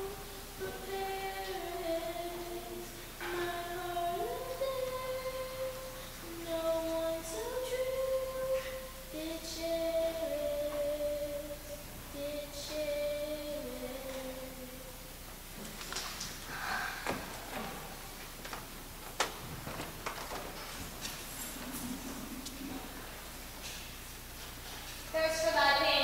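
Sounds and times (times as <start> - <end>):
girl singing unaccompanied: 0.0 - 15.1.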